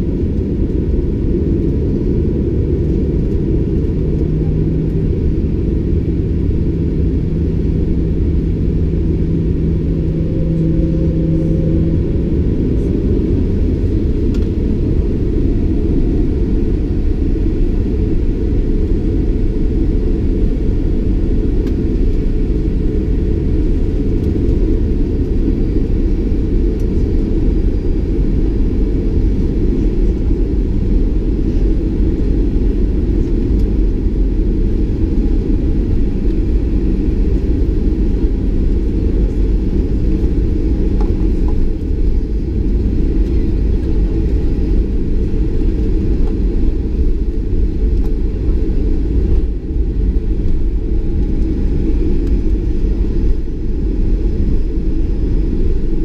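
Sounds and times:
aircraft engines low rumble: 0.0s - 56.0s
aircraft rolling on taxiway: 0.0s - 56.0s.

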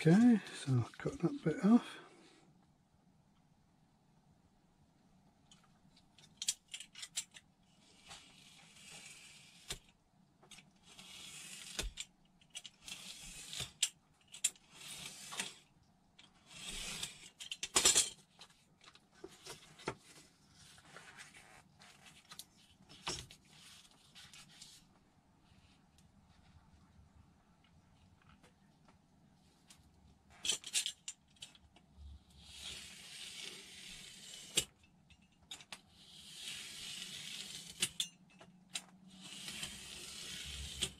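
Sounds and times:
knife cutting foam: 36.1s - 37.8s, 39.3s - 40.8s.

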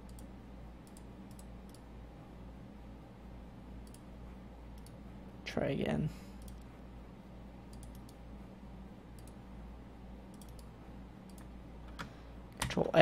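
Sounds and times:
computer mouse clicks: 0.0s - 1.9s, 3.8s - 4.1s, 4.8s - 5.0s, 6.4s - 6.7s, 7.7s - 8.2s, 9.2s - 9.4s, 10.3s - 12.7s
low electrical hum: 0.0s - 13.0s.

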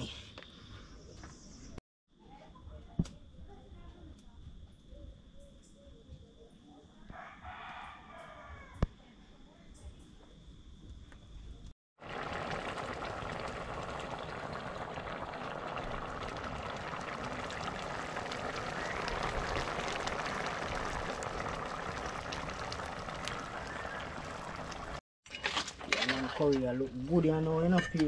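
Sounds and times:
pot boiling with bubbling hiss: 12.0s - 25.0s, 25.8s - 28.0s.

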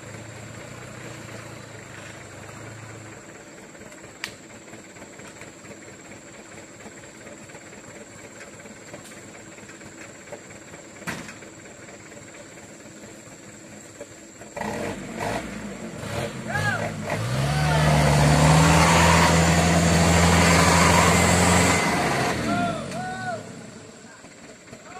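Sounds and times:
diesel truck engines idling: 0.0s - 24.9s.

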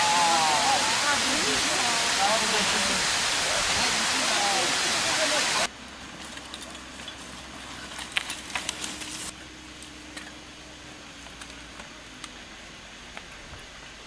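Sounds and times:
mountain bikes rolling on dirt: 5.2s - 12.3s
bike clicks and rattles: 6.2s - 10.4s.

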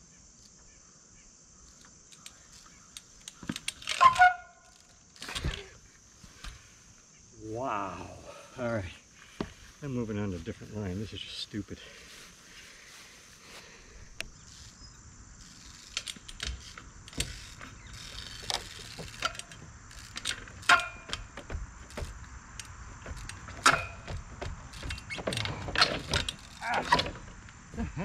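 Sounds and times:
bike chain and frame rattling: 1.7s - 5.8s, 14.3s - 27.7s
bike landing on wooden pallets: 16.3s - 27.4s.

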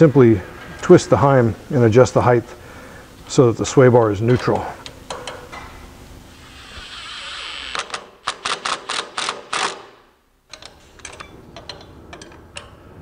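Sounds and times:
hand ratchet clicking: 6.8s - 9.9s.

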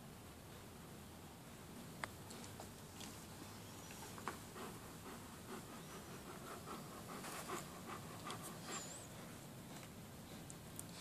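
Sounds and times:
dog panting: 3.9s - 11.0s.

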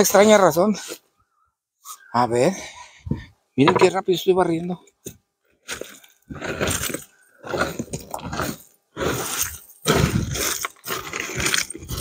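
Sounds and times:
concrete rubble scraped and crunching: 5.6s - 12.0s.

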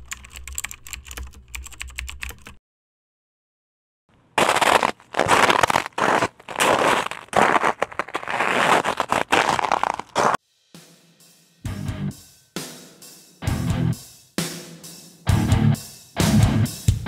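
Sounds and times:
keyboard typing clicks: 0.0s - 2.6s.

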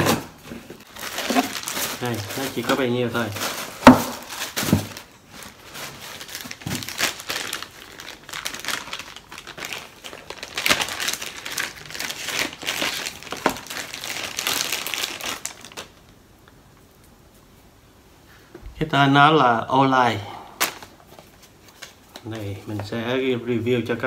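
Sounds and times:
plastic bags crinkling: 0.0s - 16.1s.

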